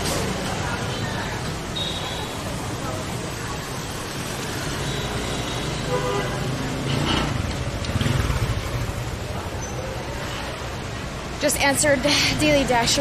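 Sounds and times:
motor scooters passing: 0.0s - 13.0s
rumble of passing engine: 6.4s - 9.6s.

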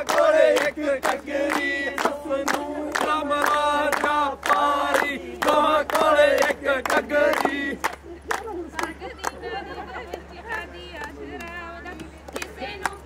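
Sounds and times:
group chanting in unison: 0.0s - 7.9s.

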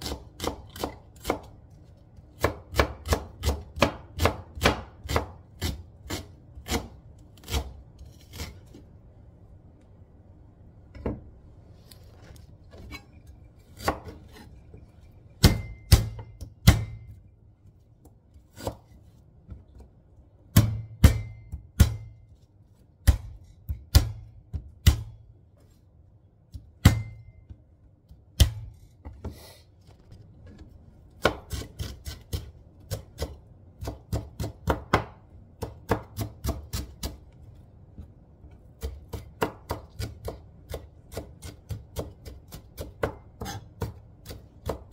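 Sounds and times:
knife striking cutting board: 15.4s - 17.2s.

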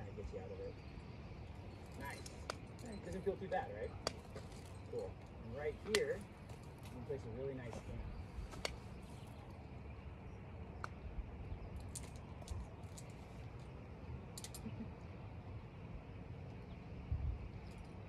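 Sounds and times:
climbing gear clinking: 1.8s - 7.0s
wind rumble on microphone: 16.6s - 18.0s.

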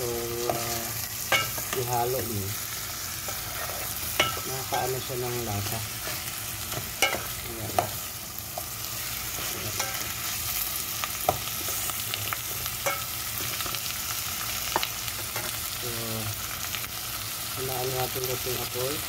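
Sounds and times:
food sizzling in oil: 0.0s - 19.0s
spatula scraping a pot: 3.2s - 4.4s.

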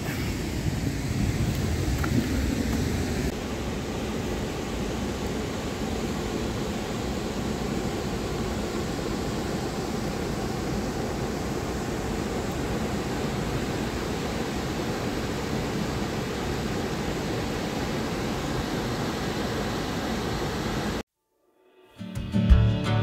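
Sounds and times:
waterfall rushing: 0.0s - 21.0s.

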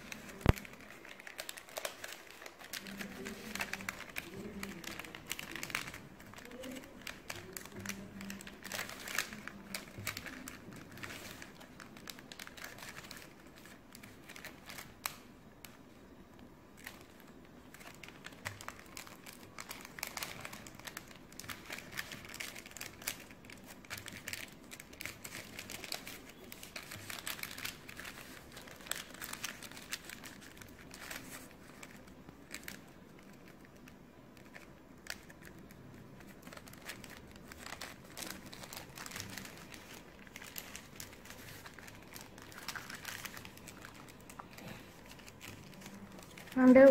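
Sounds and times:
paper crinkling and rustling: 0.0s - 15.8s, 16.8s - 46.9s.

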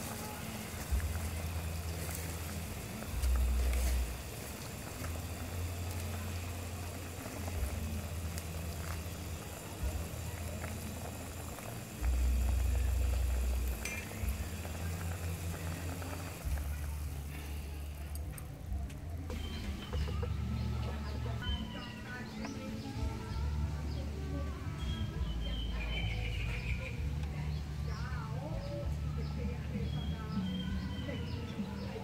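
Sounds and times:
ladle stirring pot: 0.0s - 18.4s
low rumble: 0.0s - 21.7s
soup boiling and bubbling: 0.0s - 32.0s.

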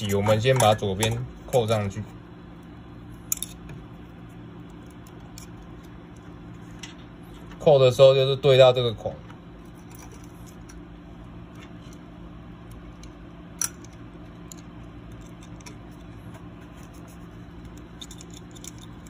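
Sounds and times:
steady low hum: 0.0s - 19.0s
metal fan clip clicking: 3.3s - 3.7s, 12.6s - 15.8s, 17.7s - 19.0s.

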